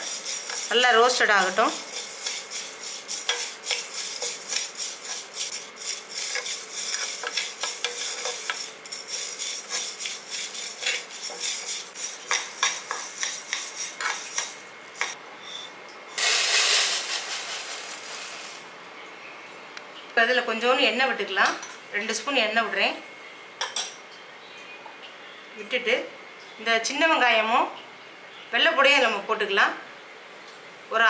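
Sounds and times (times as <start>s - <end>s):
dry seeds rattling in a pan: 0.0s - 15.2s, 16.2s - 18.7s
metal spoon scraping a pan: 0.0s - 18.6s
seeds poured out in a rush: 16.2s - 18.7s.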